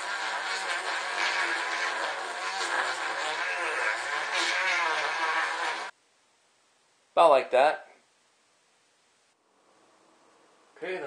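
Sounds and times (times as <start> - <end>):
rotary tool sanding wood: 0.0 - 5.9.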